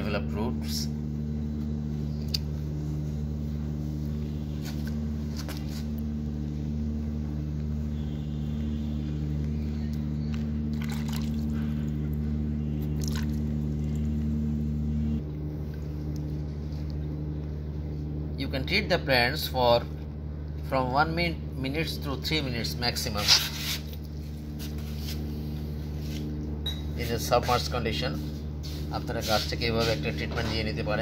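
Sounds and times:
steady low hum: 0.0 - 31.0
water splashes and squelches: 10.7 - 11.6, 12.8 - 14.0.

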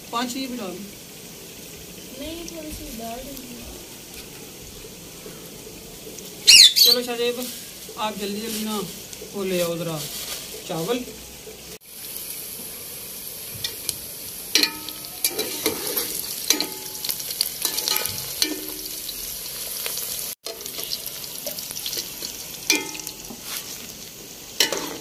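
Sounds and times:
steady hiss: 0.0 - 25.0
metal spatula clinking against pot: 14.6 - 16.9, 17.6 - 18.9, 22.7 - 23.3, 24.6 - 25.0.

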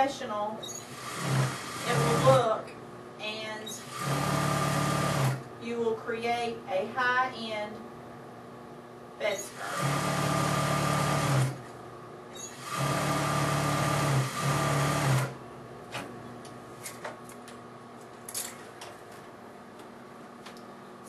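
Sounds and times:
sewing machine running: 0.8 - 2.4, 3.8 - 5.4, 9.5 - 11.6, 12.5 - 15.4.

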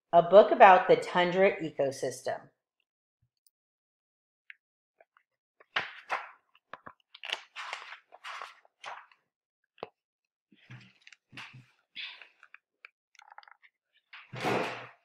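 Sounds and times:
book pages rustling: 5.6 - 9.2, 10.6 - 12.6.

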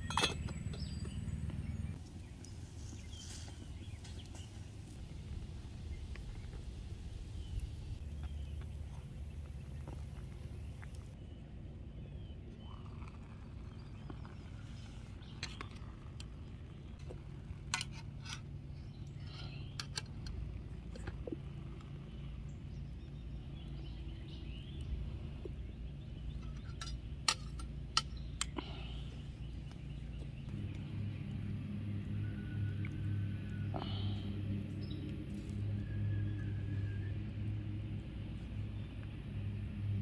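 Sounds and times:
metallic clinks of pot and spoon: 0.0 - 0.8
outdoor background noise: 0.0 - 40.0.

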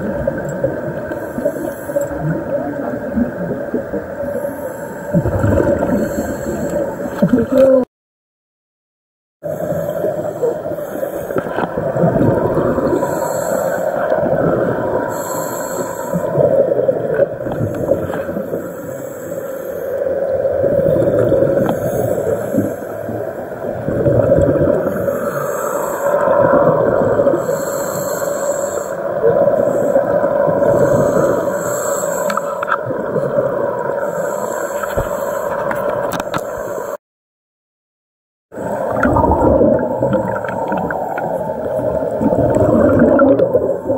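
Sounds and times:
bubbles hissing: 0.0 - 7.8, 9.5 - 18.4, 38.6 - 43.9
underwater water rush and gurgle: 0.0 - 7.8, 9.4 - 37.0, 38.5 - 43.9.

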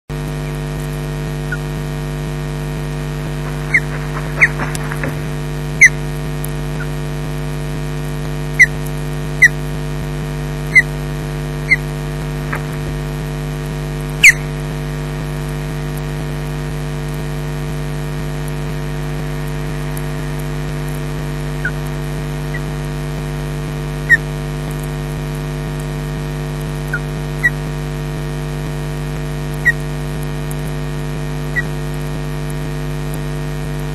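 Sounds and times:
electrical hum: 0.1 - 33.9
high chirps: 3.4 - 6.0, 14.2 - 14.6.

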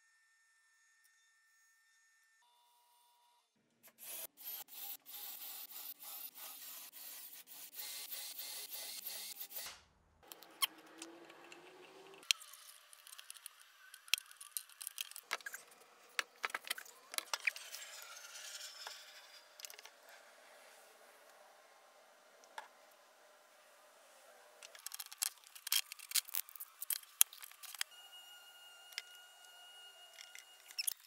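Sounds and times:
wood scraping and clicking: 24.6 - 27.9
cordless drill boring into wood: 27.5 - 31.0.

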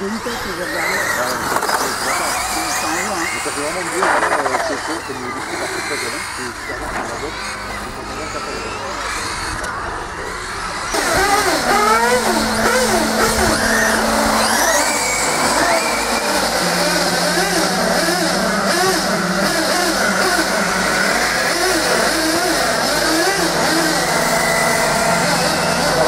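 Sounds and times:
rc car motors whining: 0.0 - 26.0
steady low hum: 6.8 - 21.2.

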